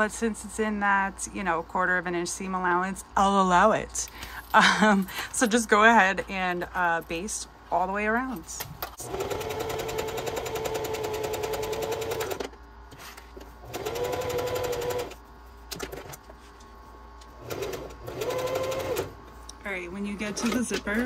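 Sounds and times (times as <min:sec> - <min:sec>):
sewing machine stitching: 0:09.0 - 0:12.5, 0:13.6 - 0:15.2, 0:17.4 - 0:19.1.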